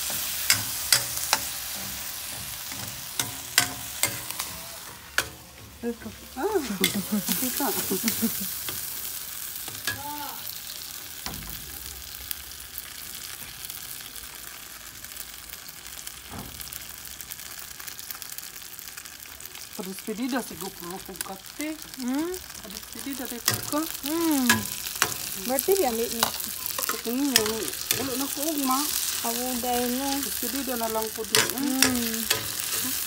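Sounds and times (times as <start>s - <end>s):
metal spoon scraping pan: 0.0s - 5.5s, 23.4s - 33.0s
meat and sauce sizzling in wok: 0.0s - 33.0s.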